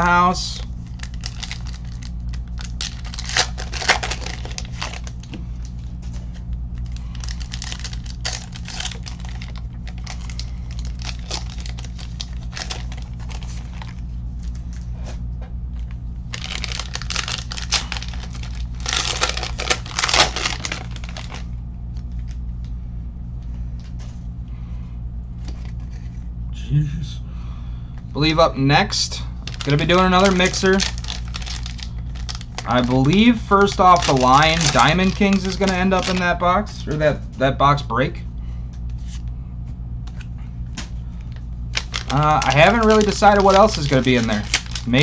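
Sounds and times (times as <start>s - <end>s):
low hum: 0.0s - 45.0s
plastic wrapping crinkling and tearing: 0.5s - 6.0s, 6.8s - 14.8s, 15.8s - 22.4s, 29.4s - 36.4s, 40.8s - 45.0s.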